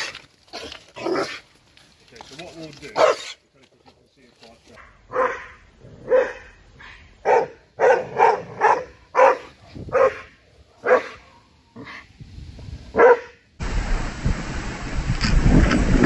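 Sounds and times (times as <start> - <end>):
dog barking: 3.0 - 3.3, 4.8 - 11.2, 13.0 - 13.4.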